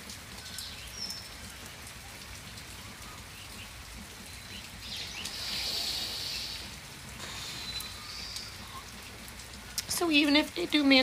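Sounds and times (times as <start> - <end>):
light rain: 0.0 - 11.0
breathy hiss: 5.1 - 8.6.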